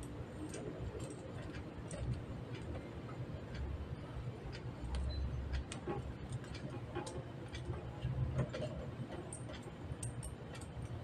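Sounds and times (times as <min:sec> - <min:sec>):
small sharp clicks and taps: 0:04.5 - 0:11.0.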